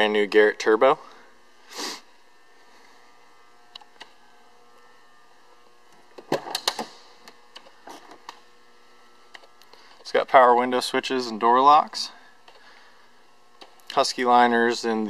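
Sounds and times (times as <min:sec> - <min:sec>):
short hiss: 0:01.6 - 0:02.1.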